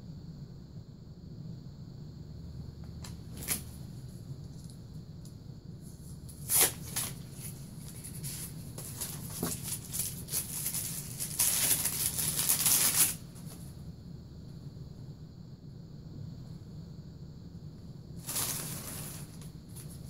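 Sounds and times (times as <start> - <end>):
hands rustling packing material: 6.3 - 13.6, 18.2 - 20.0.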